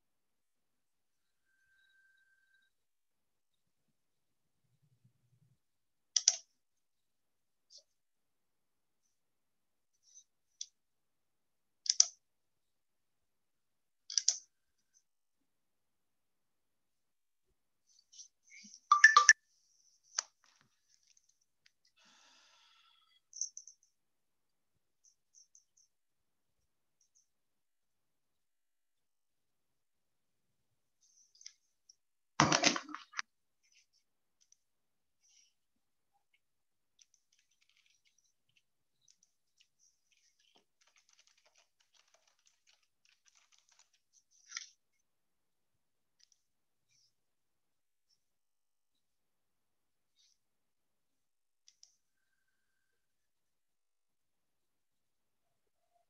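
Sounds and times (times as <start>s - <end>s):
computer keyboard typing: 37.0s - 39.2s, 40.1s - 44.0s.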